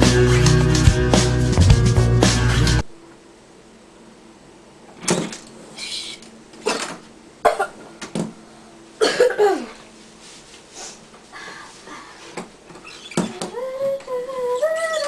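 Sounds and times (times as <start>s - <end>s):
person coughing: 6.6s - 7.8s, 9.0s - 9.8s.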